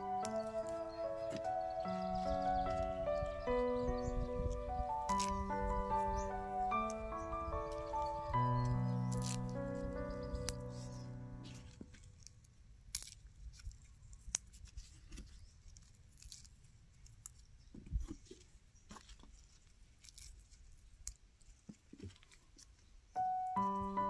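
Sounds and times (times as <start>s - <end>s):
background music with sustained notes: 0.0s - 11.8s, 23.2s - 24.0s.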